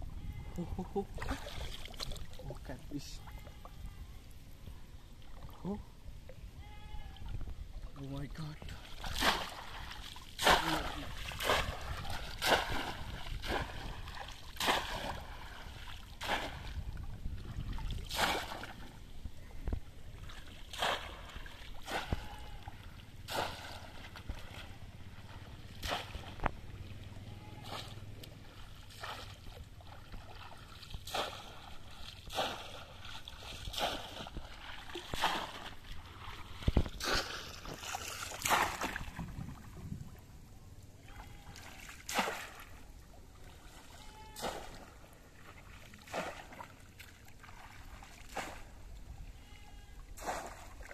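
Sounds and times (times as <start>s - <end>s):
water sloshing: 0.0s - 50.9s
fish trap splashing into water: 9.0s - 16.8s, 17.9s - 18.8s, 20.6s - 22.7s, 23.3s - 24.6s, 25.7s - 26.5s, 28.5s - 36.0s, 36.6s - 39.4s, 41.6s - 42.8s, 44.2s - 45.1s, 46.0s - 48.8s, 50.2s - 50.9s.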